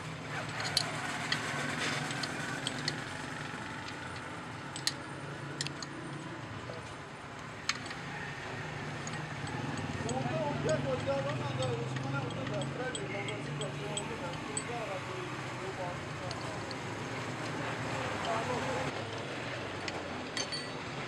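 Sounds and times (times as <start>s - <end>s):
sharp metal clicks and taps: 0.5s - 6.0s, 7.4s - 8.0s, 8.9s - 15.0s, 16.2s - 17.6s, 19.1s - 20.8s.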